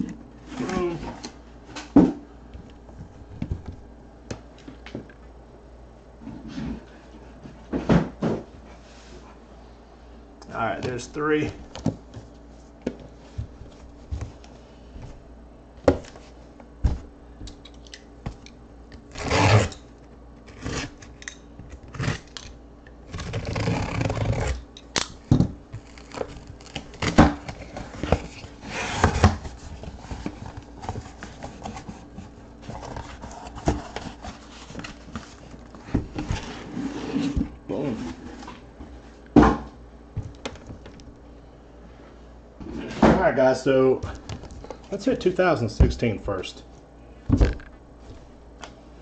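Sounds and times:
box cutter slicing tape: 19.1s - 19.8s, 20.5s - 21.1s, 23.1s - 25.1s
cardboard flaps scraping and rustling: 25.7s - 38.7s.

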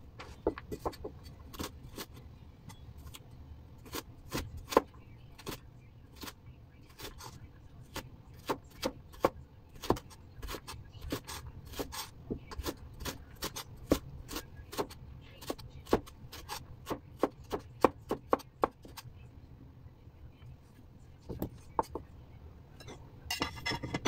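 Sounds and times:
knife chopping on wooden board: 0.4s - 1.7s.

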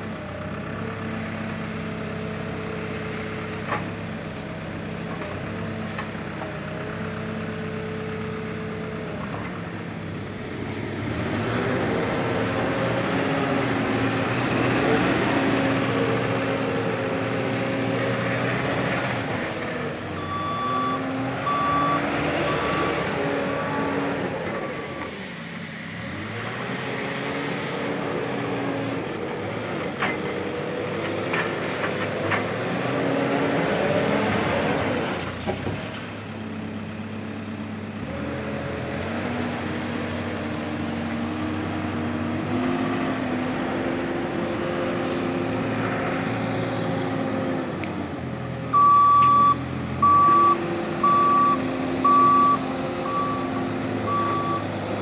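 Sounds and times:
diesel engine running: 0.0s - 55.0s
reversing alarm beeping: 20.2s - 25.1s, 48.8s - 54.7s.

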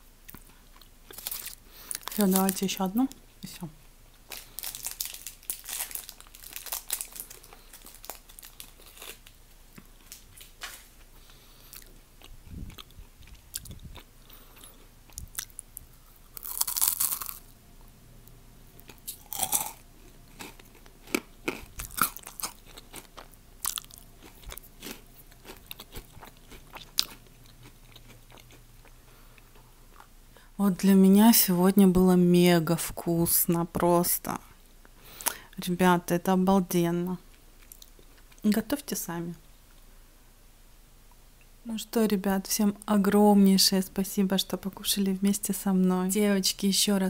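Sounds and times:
crunching candy: 0.3s - 3.2s, 4.2s - 10.5s, 11.6s - 17.5s, 18.8s - 30.1s.

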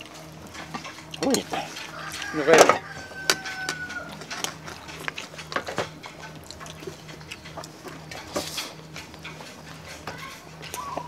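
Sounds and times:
wet chewing and lip smacks: 3.7s - 9.5s.

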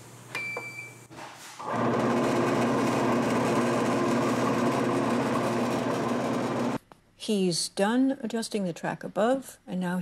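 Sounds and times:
machine motor humming: 1.7s - 6.8s.

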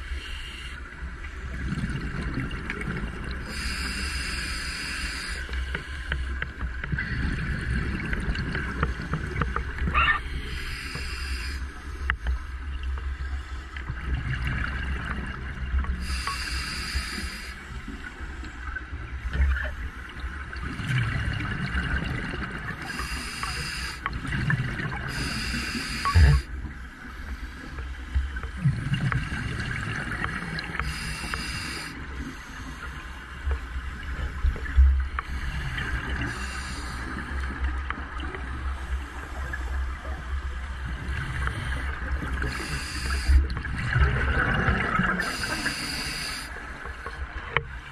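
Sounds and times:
regulator hissing breath: 0.0s - 0.8s, 3.5s - 6.3s, 10.3s - 12.0s, 16.0s - 17.7s, 22.9s - 24.0s, 25.1s - 26.5s, 30.8s - 33.0s, 35.2s - 37.4s, 42.4s - 43.5s, 45.2s - 46.7s.

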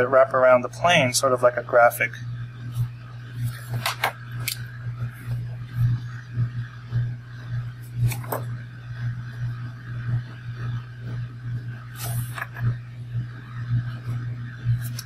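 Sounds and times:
steady low hum: 0.0s - 15.0s
short sharp pen scratches: 12.0s - 12.5s.

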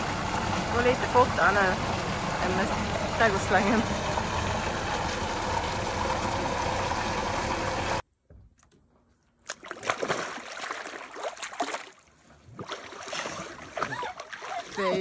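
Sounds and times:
water gushing from a hose: 0.0s - 8.0s
water splashing and lapping: 0.0s - 8.0s, 8.6s - 15.0s.

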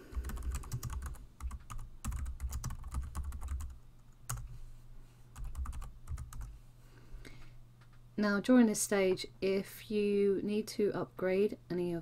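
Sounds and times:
keyboard typing: 0.1s - 4.5s, 5.4s - 6.5s.

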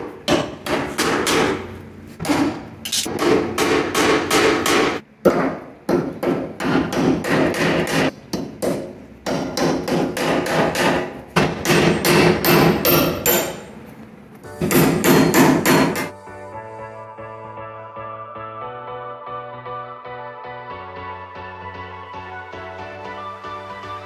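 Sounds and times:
hammer striking metal punch: 0.0s - 13.7s, 14.6s - 16.2s
background music: 14.4s - 24.0s.

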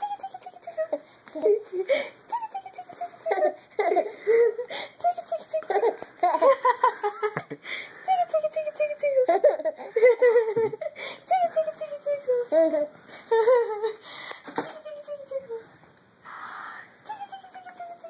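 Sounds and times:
baby giggling: 0.4s - 7.5s, 8.3s - 14.0s.

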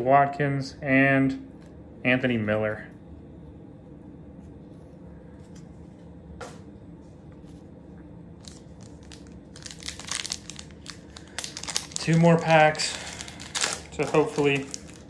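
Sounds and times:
low steady hum: 0.0s - 15.0s
cards being handled: 8.4s - 15.0s
foil wrapper crinkling: 8.4s - 15.0s.

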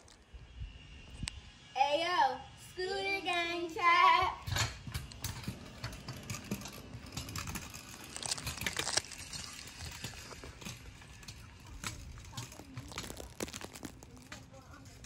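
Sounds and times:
scooter wheels rolling on concrete: 3.0s - 15.0s.

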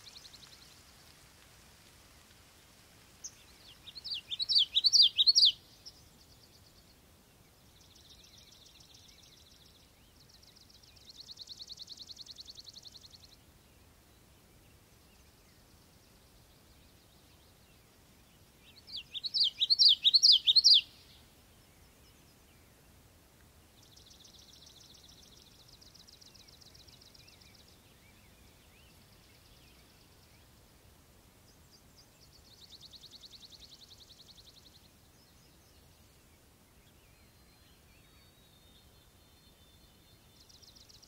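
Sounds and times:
birds singing whistled notes: 3.2s - 7.0s, 18.6s - 22.8s, 31.5s - 41.0s.

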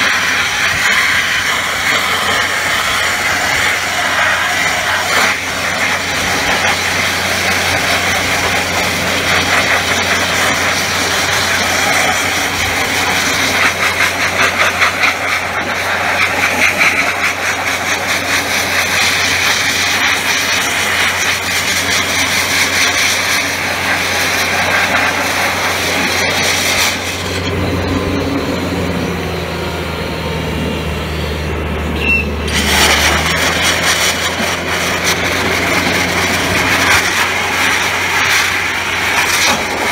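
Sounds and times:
abrasive blaster nozzle hissing: 0.0s - 27.5s
air compressor drone: 0.0s - 39.9s.

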